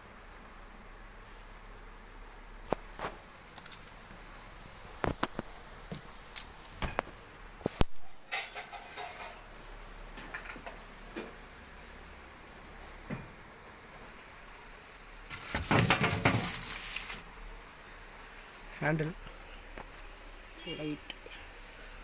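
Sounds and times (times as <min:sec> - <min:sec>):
short rustle: 0:14.9 - 0:17.3.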